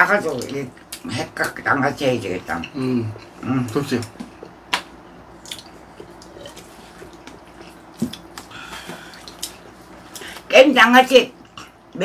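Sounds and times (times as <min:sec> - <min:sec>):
wet chewing: 0:02.4 - 0:10.5.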